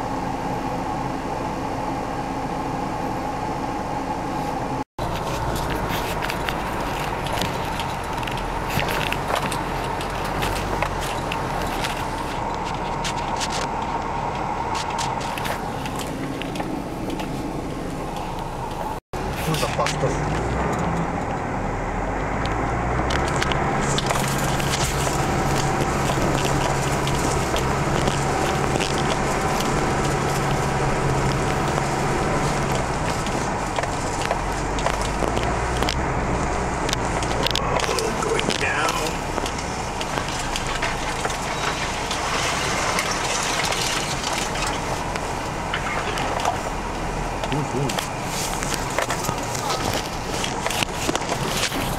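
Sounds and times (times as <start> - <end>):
vehicle engine and road drone: 0.0 - 51.9
clicks and knocks of jolting vehicle: 5.0 - 17.2, 22.9 - 51.9.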